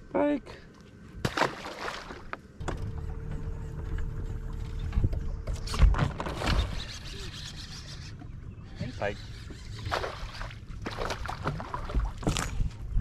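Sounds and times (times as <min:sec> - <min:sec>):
electric trolling motor humming: 0:02.6 - 0:08.2.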